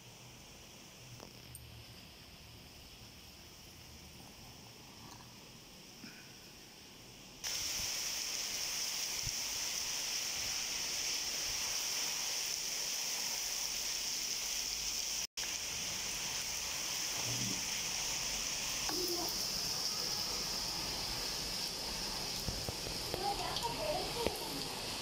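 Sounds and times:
heavy rain pouring: 7.4 - 25.0.

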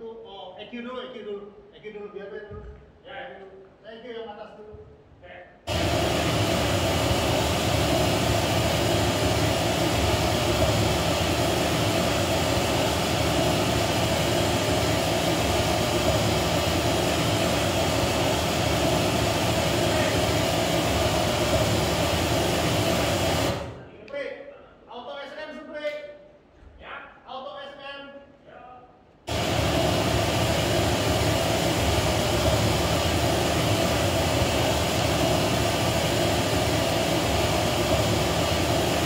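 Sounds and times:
pink noise through loudspeakers: 10.3 - 22.5.

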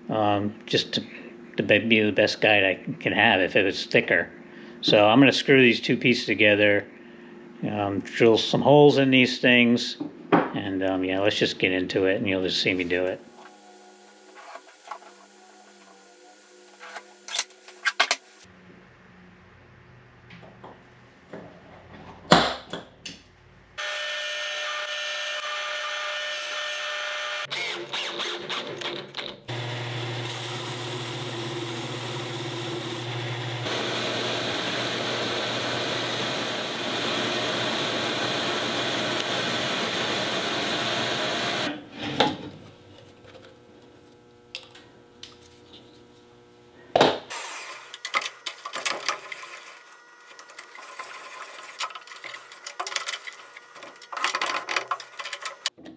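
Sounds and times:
power tool running: 13.1 - 18.5, 23.8 - 28.9, 29.5 - 42.1
drill press cutting wood: 23.8 - 42.1
drill press humming: 23.8 - 42.9.

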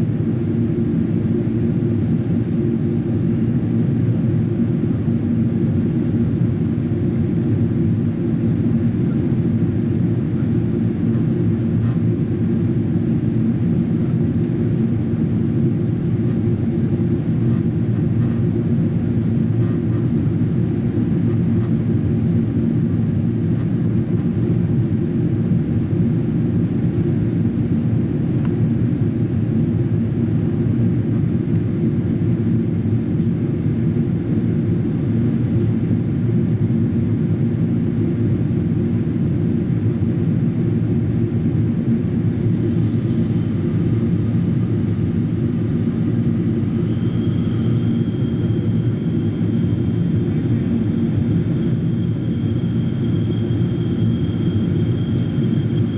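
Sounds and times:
aircraft cabin engine roar: 0.0 - 55.9
faint high whine: 40.5 - 55.9.

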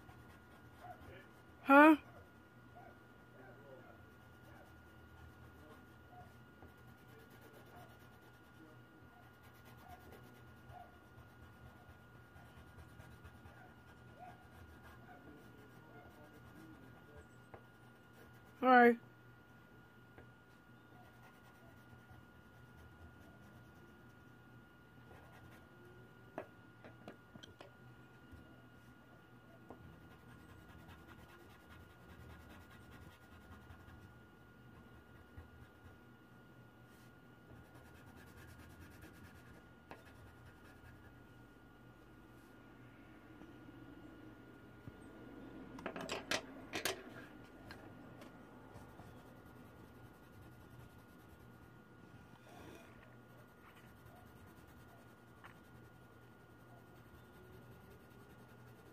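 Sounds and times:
pencil scratching on paper: 0.0 - 1.6, 4.0 - 17.1, 21.0 - 24.2, 25.1 - 25.7, 29.9 - 34.2, 34.8 - 36.0, 37.5 - 41.2, 48.7 - 51.7, 52.5 - 58.9
low steady hum: 0.0 - 58.9.

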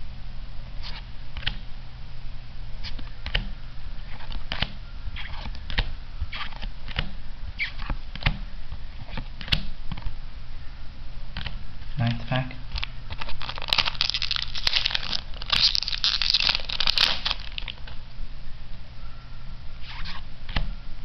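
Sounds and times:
steady low hum: 0.0 - 21.0
cards flipping and snapping: 4.1 - 8.4, 12.7 - 18.0.

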